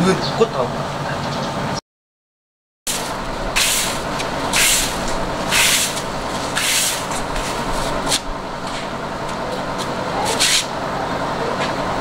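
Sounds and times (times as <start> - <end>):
broom sweeping ground: 2.9 - 9.0, 9.7 - 10.8.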